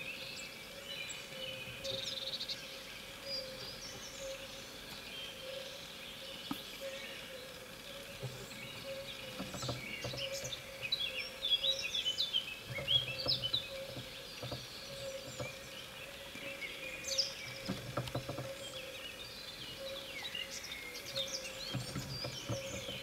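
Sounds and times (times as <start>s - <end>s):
faint steady hum: 0.0s - 23.0s
songbirds chirping and trilling: 0.0s - 23.0s.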